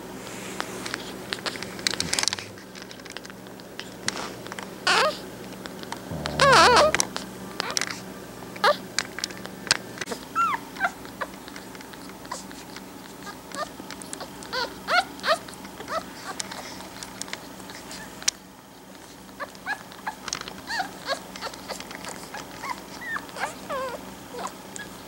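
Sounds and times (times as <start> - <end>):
puppies squeaking and whimpering: 6.1 - 7.8, 19.4 - 25.0.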